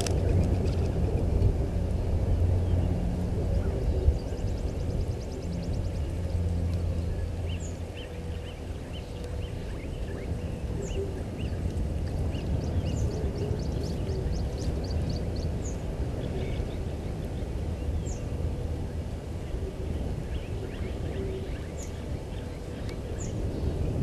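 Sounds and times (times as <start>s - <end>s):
low outdoor rumble: 0.0s - 24.0s
small birds chirping: 2.2s - 18.4s.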